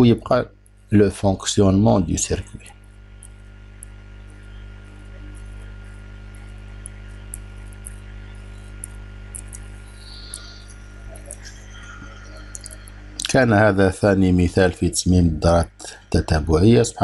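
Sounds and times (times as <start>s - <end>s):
electrical mains hum: 0.0s - 17.0s
faint ticks: 2.6s - 13.3s.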